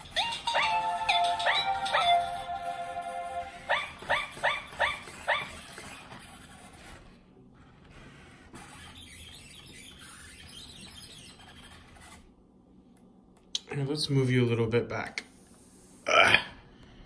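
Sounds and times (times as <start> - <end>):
robot dog yipping barks: 3.7 - 5.6.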